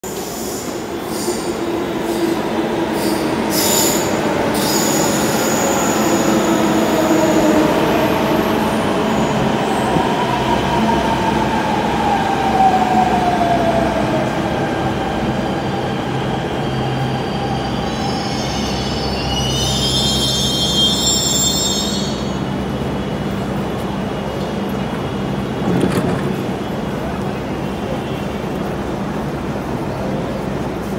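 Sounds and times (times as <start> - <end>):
low train rumble: 0.0 - 30.9
high brake squeal: 3.0 - 6.5, 16.7 - 22.5.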